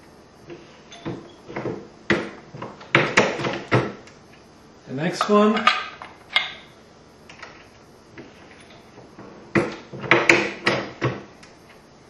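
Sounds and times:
metal clunks and clinks: 0.9 - 1.3.

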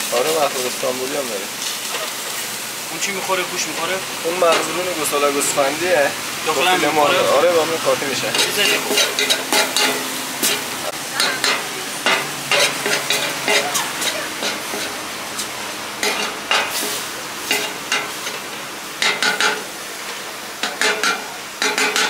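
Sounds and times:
food sizzling in a pan: 0.0 - 22.0
utensil scraping a pan: 8.2 - 18.4.

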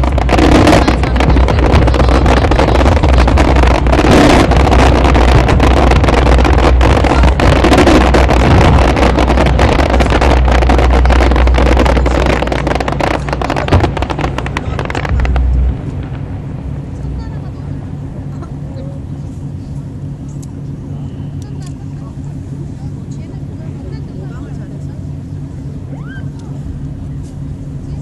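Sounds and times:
fireworks bangs and crackles: 0.0 - 19.6
deep rumble: 0.0 - 28.0.

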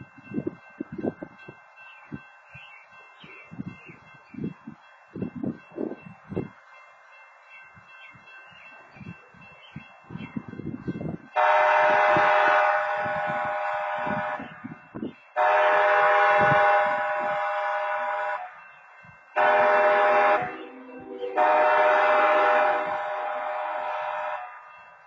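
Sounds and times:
railroad crossing horns: 10.7 - 25.0
locomotive horn: 11.4 - 14.6, 15.4 - 18.6, 19.4 - 24.6.

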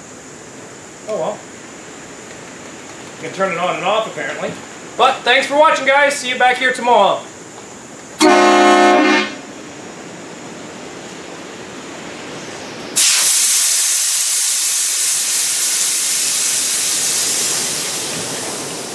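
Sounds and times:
air horn blast: 8.2 - 9.5
compressed air hissing: 12.2 - 18.9.

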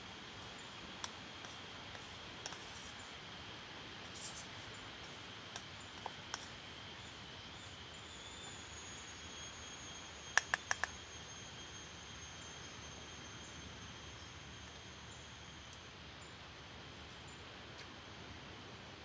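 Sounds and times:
thin high-pitched whine: 0.0 - 16.4.

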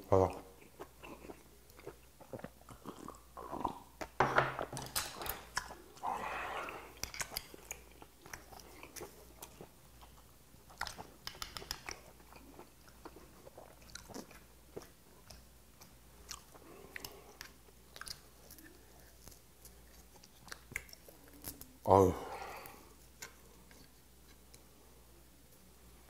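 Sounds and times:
close-up chewing: 0.2 - 4.2, 5.0 - 21.8.

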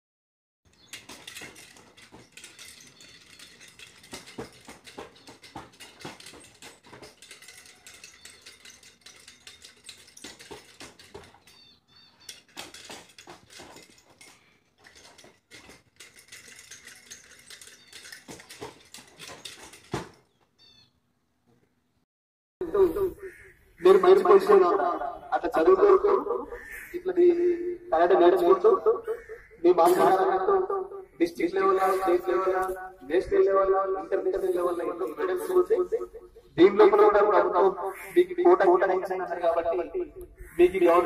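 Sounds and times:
small birds chirping: 0.7 - 5.7, 11.2 - 12.7, 17.6 - 18.3, 20.2 - 22.0.

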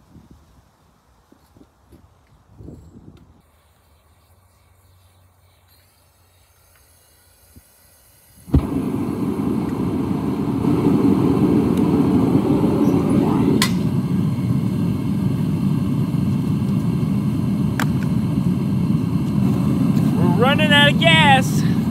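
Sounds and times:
gas burner igniting whoomp: 6.0 - 21.9
burner rushing noise: 8.4 - 21.9.

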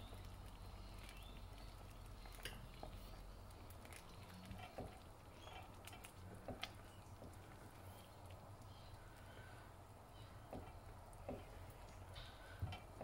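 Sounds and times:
low steady hum: 0.0 - 13.0
spatula tapping pot: 10.5 - 11.6.

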